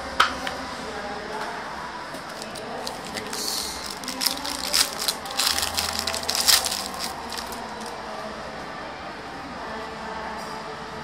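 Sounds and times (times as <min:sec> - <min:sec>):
wrapper crinkling being torn: 0:02.3 - 0:08.0.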